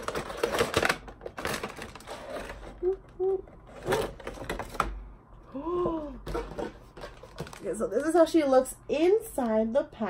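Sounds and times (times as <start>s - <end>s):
plastic packaging crackling: 0.0s - 3.0s
person humming: 2.7s - 3.6s, 5.4s - 6.2s.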